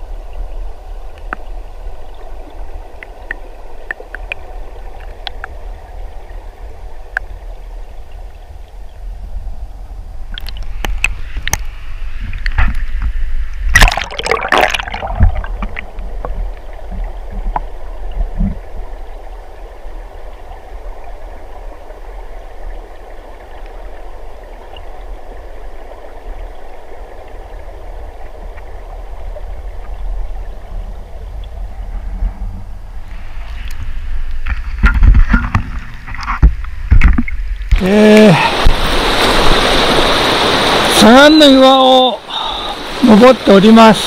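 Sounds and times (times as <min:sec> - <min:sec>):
stream running over rocks: 0:00.0 - 0:44.0.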